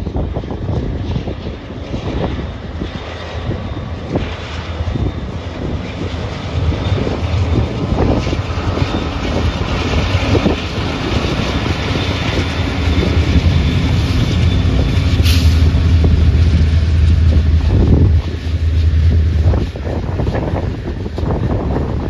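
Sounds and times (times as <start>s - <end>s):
freight train rumbling past: 0.0s - 22.0s.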